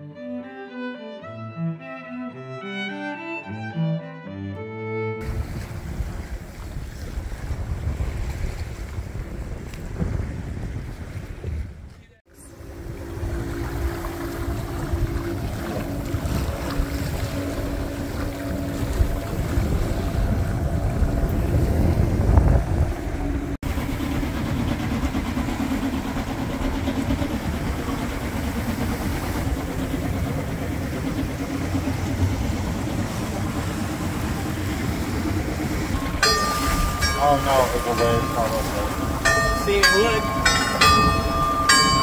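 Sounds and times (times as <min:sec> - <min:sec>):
water washing along hull: 0:05.2 - 0:42.0
wind buffeting microphone: 0:05.2 - 0:42.0
low engine drone: 0:12.3 - 0:42.0.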